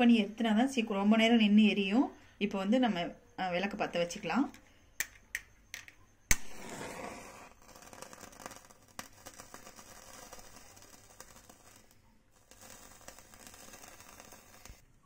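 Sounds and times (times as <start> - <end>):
match striking on box: 6.3 - 14.8
match flaring hiss: 6.3 - 14.9
burning wick crackling: 6.3 - 15.0.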